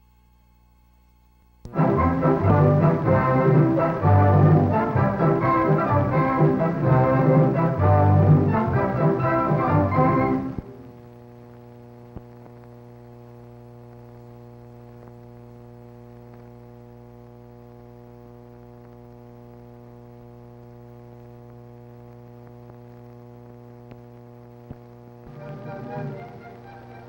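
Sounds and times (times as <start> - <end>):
steady electrical hum: 0.0 - 27.0
faint clicks and ticks: 21.1 - 25.3.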